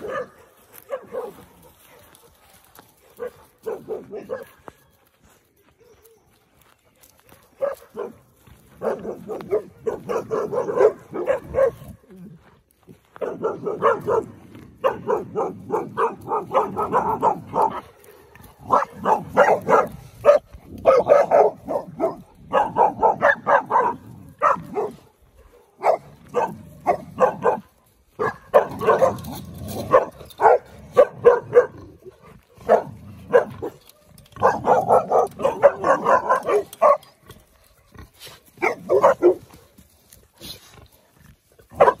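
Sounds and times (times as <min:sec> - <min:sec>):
puppies barking: 0:00.0 - 0:05.0, 0:07.2 - 0:12.1, 0:13.2 - 0:39.7, 0:41.7 - 0:42.0.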